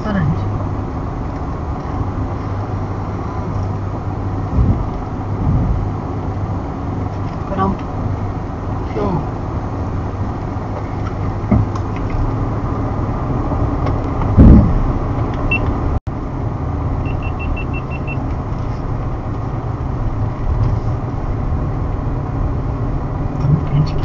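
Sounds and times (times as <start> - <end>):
car engine and tyre rumble: 0.0 - 24.0
loud thump: 4.5 - 5.8, 14.2 - 14.9
short high beeps: 17.1 - 18.2.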